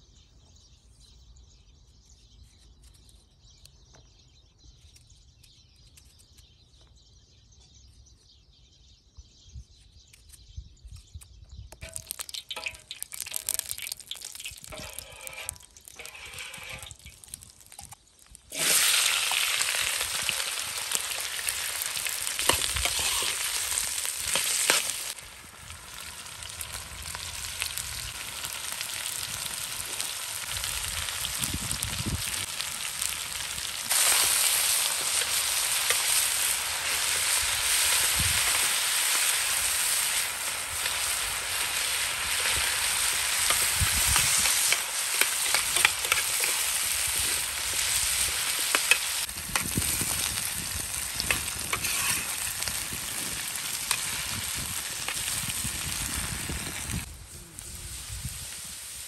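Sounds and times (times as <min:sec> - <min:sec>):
metal spoon scraping pan: 0:11.8 - 0:17.9, 0:22.4 - 0:25.2, 0:43.5 - 0:46.6, 0:51.3 - 0:52.4
potatoes sizzling in hot oil: 0:11.8 - 0:59.0.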